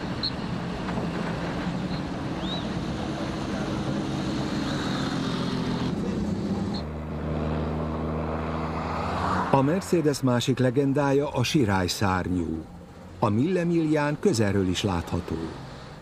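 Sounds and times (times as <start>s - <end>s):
rally car engines driving past: 0.0s - 16.0s
steady car engine: 0.0s - 16.0s
street noise: 0.0s - 16.0s.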